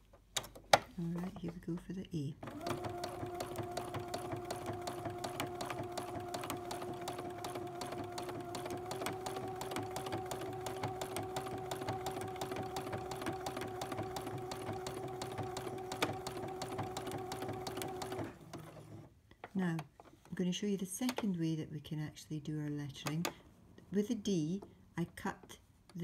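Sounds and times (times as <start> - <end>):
sewing needle clicking rapidly: 2.4 - 18.3
sewing machine motor hum: 2.4 - 19.1.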